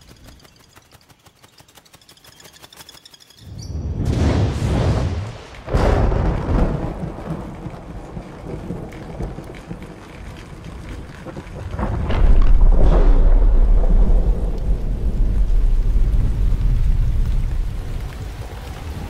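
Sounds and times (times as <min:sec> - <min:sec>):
thunder rumbling: 0:03.8 - 0:19.0
sharp thunderclap: 0:03.9 - 0:09.9, 0:11.2 - 0:18.4.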